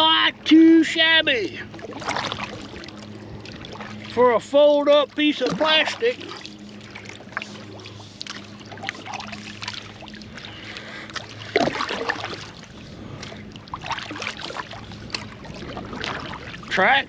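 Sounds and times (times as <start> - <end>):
low steady hum: 0.0 - 17.0
paddle splashing in water: 1.6 - 16.9.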